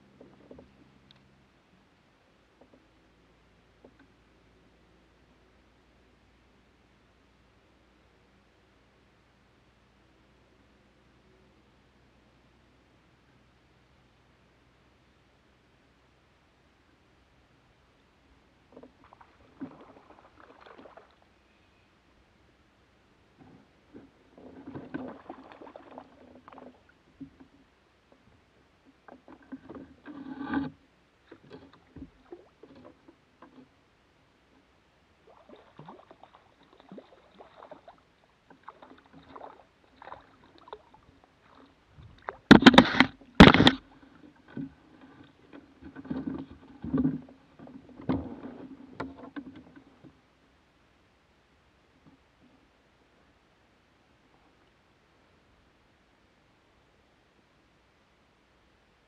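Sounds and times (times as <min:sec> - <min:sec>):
gear knocking on plastic kayak hull: 0:42.4 - 0:43.8.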